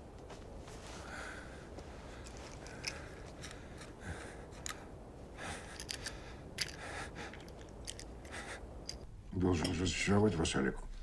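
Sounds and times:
faint outdoor background: 0.0 - 11.0
gloved hands rustling: 0.1 - 9.1
small clicks: 5.7 - 9.0.

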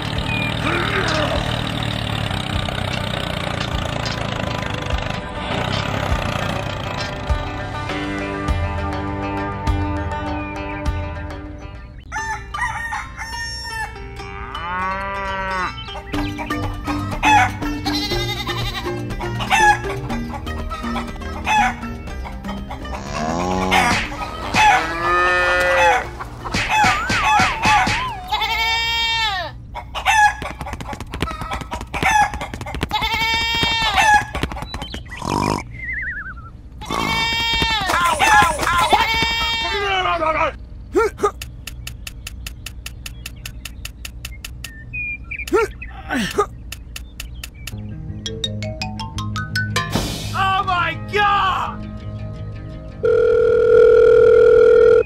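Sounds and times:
goats and sheep bleating: 0.6 - 1.6, 14.0 - 15.9, 16.9 - 19.8, 22.8 - 26.3, 28.1 - 29.6, 32.8 - 34.3, 36.8 - 41.2
light background music: 2.8 - 28.0
roosters crowing: 12.0 - 41.3.

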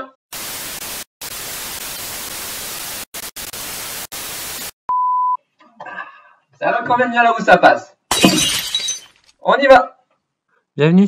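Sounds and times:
television static hiss: 0.4 - 4.7.

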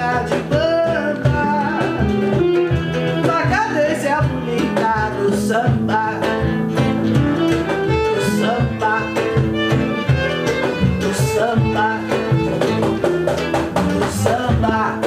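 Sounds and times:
acoustic guitar strumming: 0.0 - 15.0
woman singing: 0.0 - 15.0
violin playing: 1.2 - 4.0, 6.7 - 15.0.

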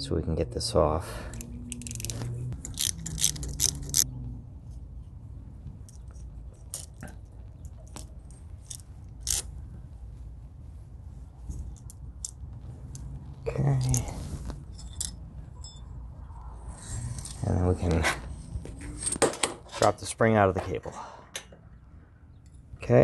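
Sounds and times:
wrench clicking on metal: 1.3 - 4.0.

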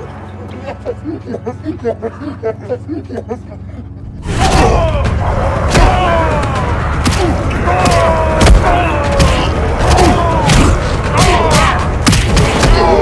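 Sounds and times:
heavy metal music: 3.9 - 13.0.

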